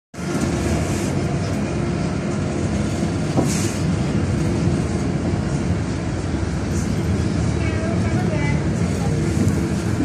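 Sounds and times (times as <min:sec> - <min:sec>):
bus engine and road rumble: 0:00.1 - 0:10.0.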